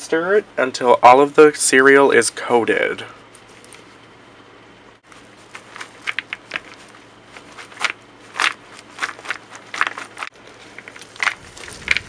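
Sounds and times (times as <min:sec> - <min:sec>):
cereal rustling and crunching in bowl: 0:05.1 - 0:12.0.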